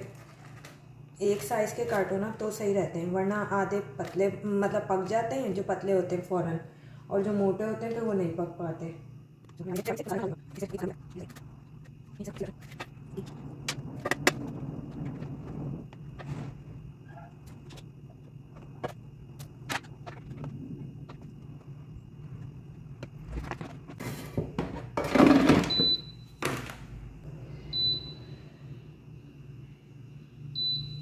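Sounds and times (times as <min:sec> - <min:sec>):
air fryer humming: 0:00.0 - 0:31.0
basket thunk and scrape: 0:23.3 - 0:26.8.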